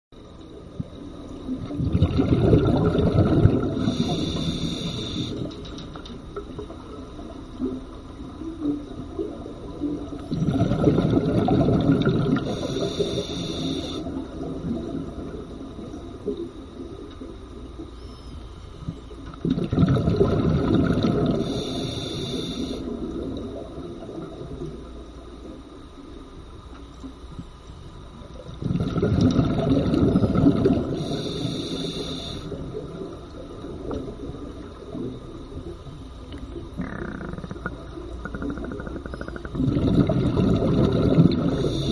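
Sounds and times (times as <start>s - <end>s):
bubbles from exhalation underwater: 1.6s - 4.0s, 10.3s - 12.6s, 19.4s - 21.4s, 28.6s - 31.1s, 36.6s - 41.9s
regulator hiss: 3.6s - 5.6s, 12.3s - 14.4s, 21.3s - 23.2s, 30.8s - 32.8s, 41.3s - 41.9s.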